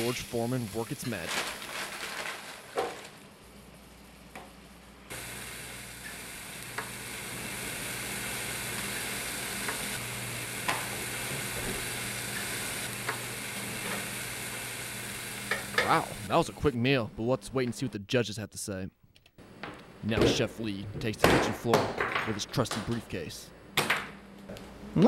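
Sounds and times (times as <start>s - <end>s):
meat sizzling on a grill: 0.0s - 3.0s, 5.1s - 16.3s.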